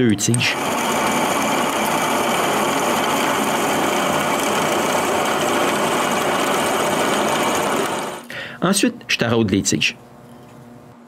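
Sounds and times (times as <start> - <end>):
drill press drilling metal: 0.4 - 8.2.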